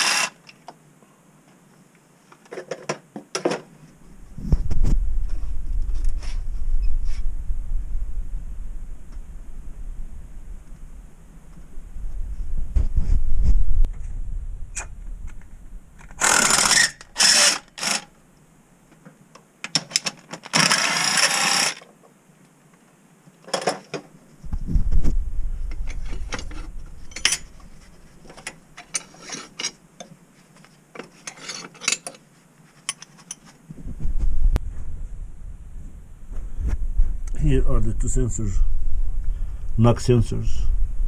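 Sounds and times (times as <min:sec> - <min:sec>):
low rumble: 0:04.0 - 0:16.4, 0:24.4 - 0:28.4, 0:33.7 - 0:41.0.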